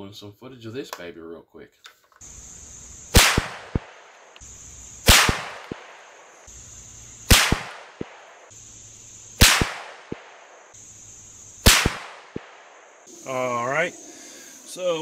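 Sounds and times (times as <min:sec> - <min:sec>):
rifle shots: 0:03.1 - 0:04.1, 0:05.0 - 0:06.1, 0:07.3 - 0:08.4, 0:09.4 - 0:10.5, 0:11.6 - 0:12.7.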